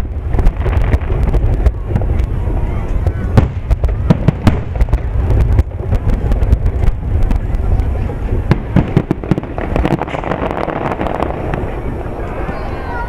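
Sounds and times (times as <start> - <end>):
dense crackle: 0.0 - 12.8
continuous low rumble: 0.0 - 13.0
firework shells bursting: 8.4 - 12.7.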